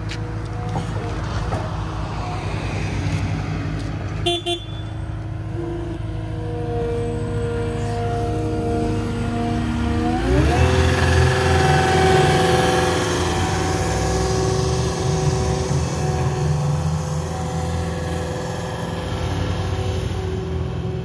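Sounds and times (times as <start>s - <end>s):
diesel engine revving: 5.0s - 21.0s.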